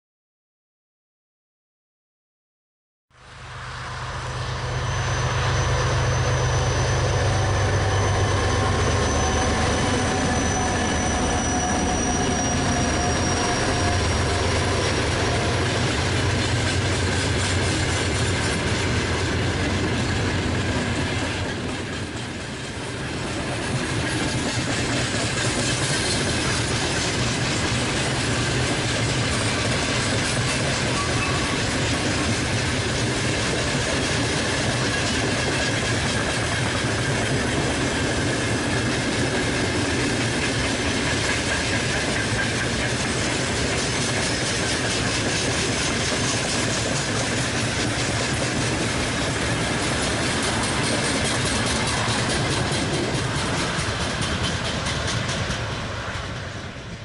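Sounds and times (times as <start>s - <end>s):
diesel locomotive drone: 3.1s - 57.0s
train wheels rolling on rails: 3.6s - 57.0s
faint high wheel squeal: 3.8s - 18.5s, 25.0s - 54.6s.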